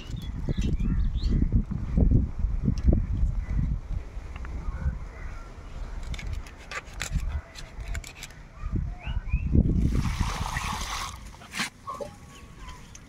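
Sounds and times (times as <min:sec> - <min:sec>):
wind rumble on microphone: 0:00.0 - 0:08.0, 0:08.6 - 0:11.1
rushing splashing water: 0:09.9 - 0:11.7.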